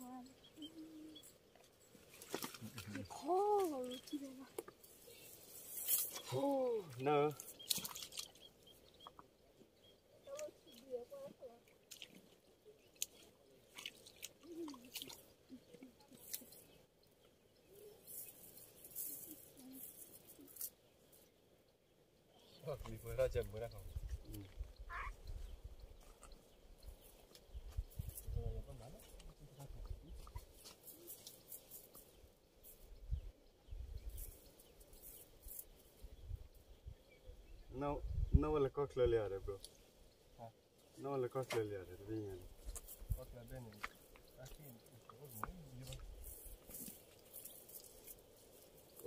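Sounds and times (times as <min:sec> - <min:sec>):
cast net clicking and rustling: 0:02.1 - 0:03.8.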